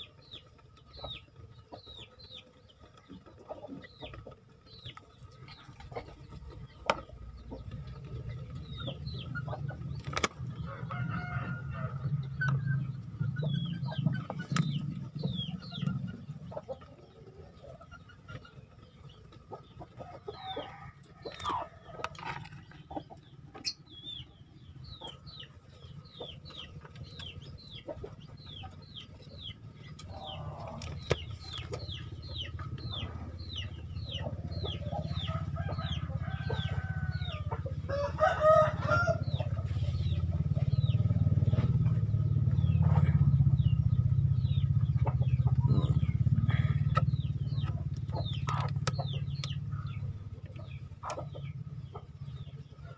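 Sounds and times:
chicks peeping: 0:00.0 - 0:52.9
rooster crowing: 0:10.6 - 0:12.2, 0:20.4 - 0:21.8, 0:35.3 - 0:39.6
low rumble: 0:39.1 - 0:52.6.

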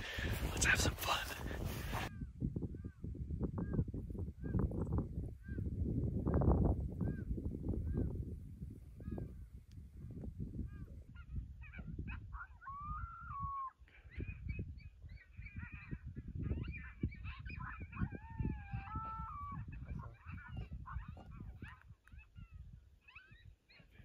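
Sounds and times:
wind rumble on microphone: 0:00.0 - 0:24.0
animals yelping: 0:11.1 - 0:24.0
wavering animal howl: 0:12.1 - 0:13.8, 0:16.6 - 0:21.4.

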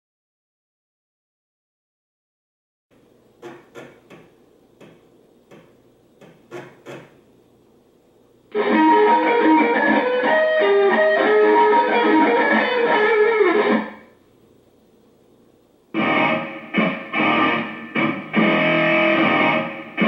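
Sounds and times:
sharp clicks: 0:03.4 - 0:07.2
computer music with electric guitar: 0:08.5 - 0:14.1, 0:16.0 - 0:20.0.

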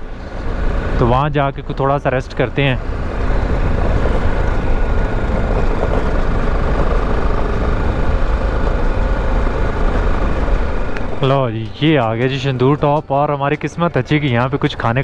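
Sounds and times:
motorcycle engine running: 0:00.0 - 0:13.1
wind noise: 0:02.8 - 0:11.7.

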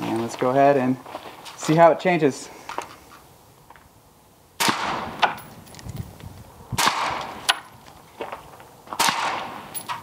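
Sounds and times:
suppressed rifle shots: 0:04.6 - 0:05.4, 0:06.8 - 0:07.6, 0:09.0 - 0:10.0.

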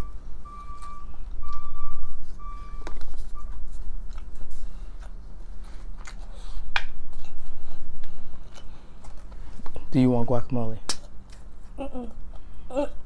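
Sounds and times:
high beeps: 0:00.0 - 0:03.5
steady low hum: 0:00.0 - 0:13.0.

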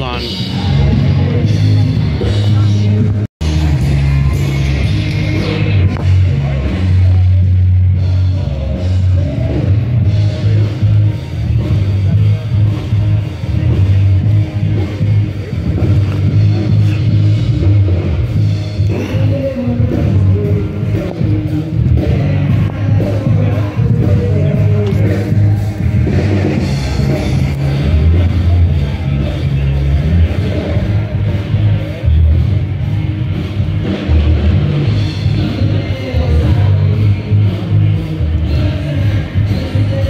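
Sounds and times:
drum kit: 0:00.0 - 0:40.0
electric guitar: 0:00.0 - 0:40.0
pulsing bass line: 0:00.0 - 0:40.0
rock band playing: 0:00.0 - 0:40.0.

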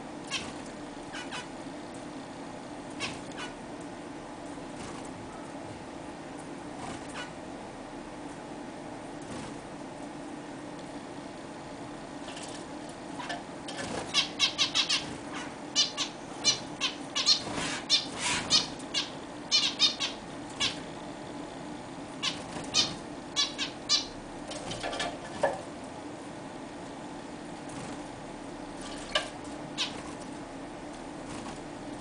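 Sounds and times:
finches beeping calls: 0:14.1 - 0:20.8, 0:22.2 - 0:24.2.

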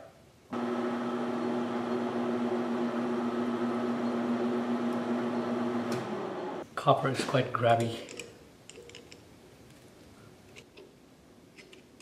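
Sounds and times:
metal lathe humming: 0:00.6 - 0:06.6.

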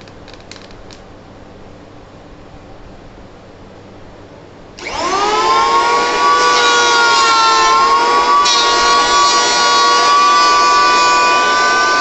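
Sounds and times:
electric hand planer motor whine: 0:04.8 - 0:12.0.

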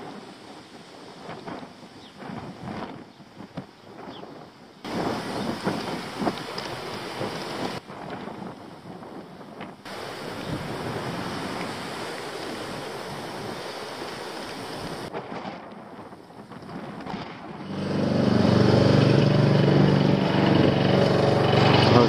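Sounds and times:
wind rushing over microphone: 0:00.0 - 0:22.0
loud steady pitched drone: 0:17.6 - 0:22.0.

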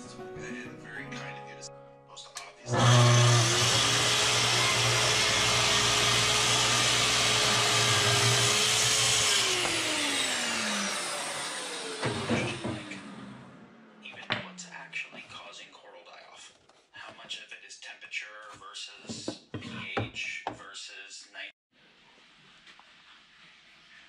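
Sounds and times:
track saw cutting wood: 0:02.7 - 0:14.2.

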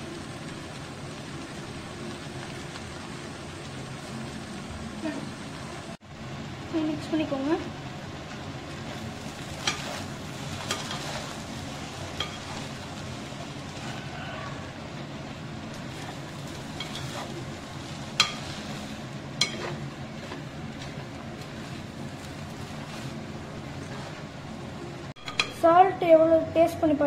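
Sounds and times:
rice sizzling in a pan: 0:00.0 - 0:27.0
spoon stirring rice: 0:09.0 - 0:12.8, 0:15.8 - 0:24.3
spoon clinking against pan: 0:25.2 - 0:25.6.

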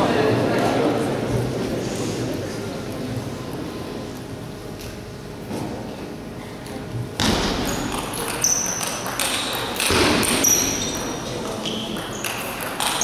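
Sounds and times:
crowd murmur in a hall: 0:00.0 - 0:13.0
table tennis ball hits: 0:07.2 - 0:13.0.

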